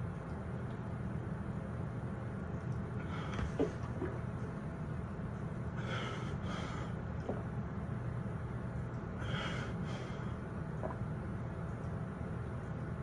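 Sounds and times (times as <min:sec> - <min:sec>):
steady low hum: 0:00.0 - 0:13.0
man gulping a drink: 0:10.8 - 0:11.1.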